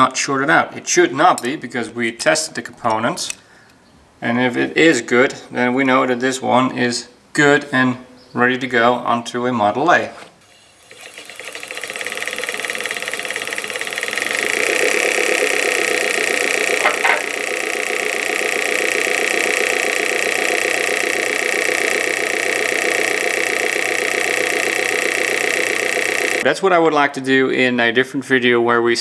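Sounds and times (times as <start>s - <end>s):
electric motor spinning: 10.4s - 26.4s
fast even ticking: 10.9s - 26.4s.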